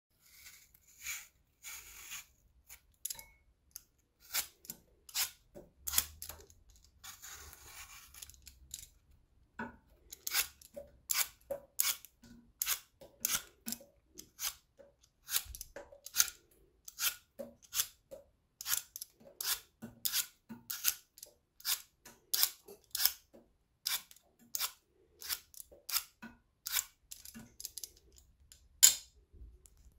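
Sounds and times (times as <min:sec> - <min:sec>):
blade scraping apple skin: 0:00.2 - 0:03.0, 0:04.2 - 0:06.4, 0:07.0 - 0:08.5, 0:10.2 - 0:18.0, 0:18.6 - 0:23.2, 0:23.8 - 0:27.9.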